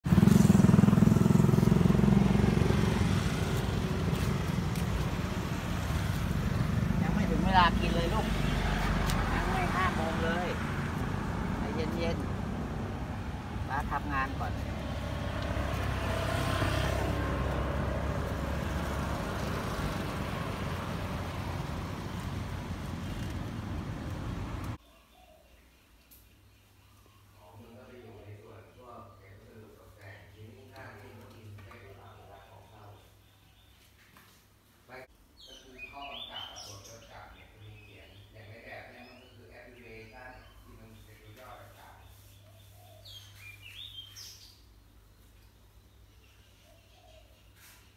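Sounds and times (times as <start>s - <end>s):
road traffic rumble: 0.0s - 24.8s
vehicle engine throbbing: 0.0s - 24.8s.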